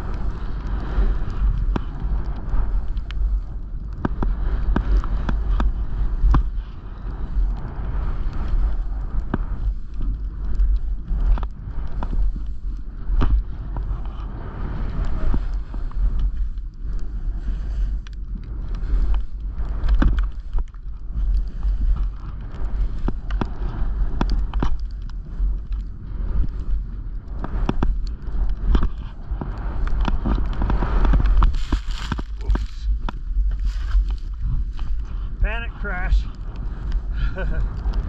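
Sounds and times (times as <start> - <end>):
wind rumbling on microphone: 0.0 - 38.0
snow sliding hiss: 29.1 - 38.0.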